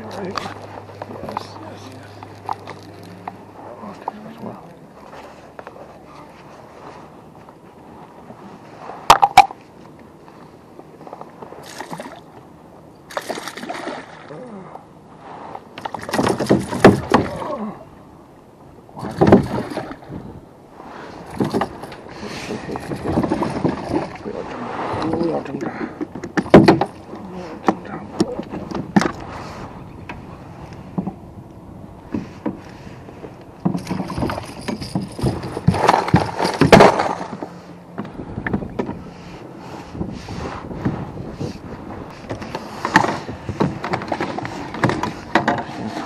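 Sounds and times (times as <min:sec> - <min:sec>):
knocks taps and rustling: 0:32.1 - 0:39.1, 0:42.2 - 0:46.0.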